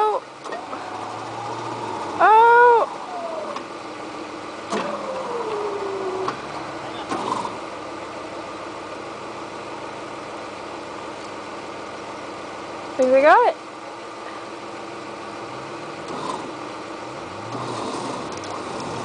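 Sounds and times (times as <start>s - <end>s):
winch motor whining: 0.0s - 10.4s, 15.2s - 19.0s
car engine idling: 0.0s - 19.0s.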